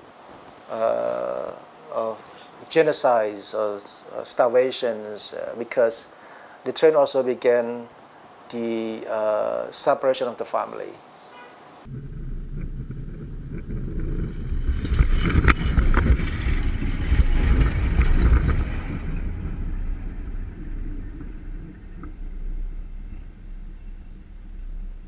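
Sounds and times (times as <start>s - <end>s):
train rumbling past: 11.8s - 25.0s.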